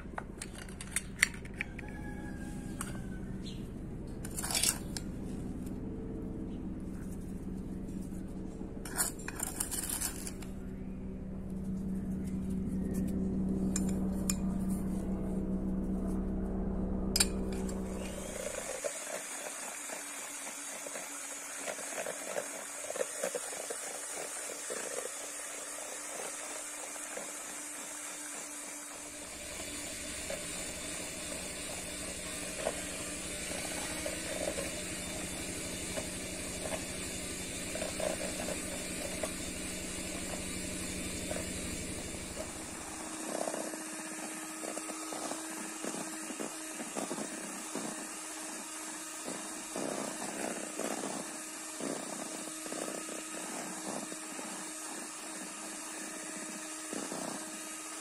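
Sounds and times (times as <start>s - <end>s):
low steady hum: 0.0s - 19.1s, 22.3s - 55.5s
electric hand mixer whining: 17.4s - 58.0s.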